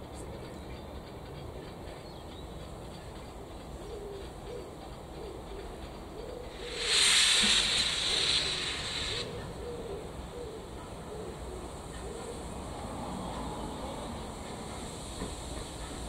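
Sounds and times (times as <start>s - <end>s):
steam locomotive rumbling: 0.0s - 16.0s
loud steam hiss: 6.4s - 16.0s.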